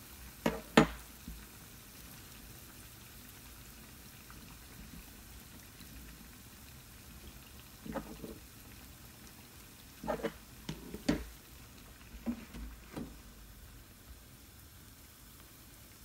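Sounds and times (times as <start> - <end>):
oil frying with low sizzle: 0.0 - 16.0
knocks and clatters at stove: 0.4 - 1.4, 7.8 - 8.4, 10.0 - 11.4, 12.0 - 13.4.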